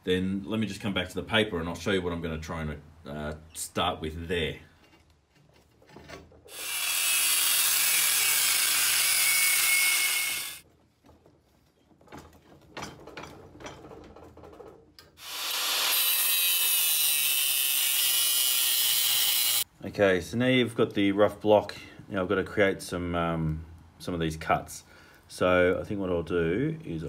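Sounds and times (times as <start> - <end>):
knocks and handling of metal: 4.7 - 6.5, 10.6 - 15.2
angle grinder cutting steel: 6.5 - 10.6, 15.2 - 19.6.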